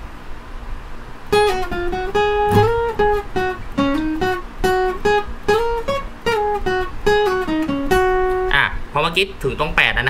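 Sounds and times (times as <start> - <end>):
acoustic guitar single-note lead: 1.3 - 8.9.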